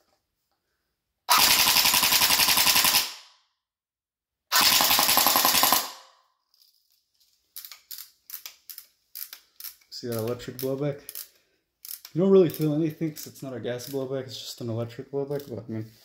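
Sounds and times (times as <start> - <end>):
airsoft gun firing bursts: 1.3 - 3.2, 4.5 - 6.0.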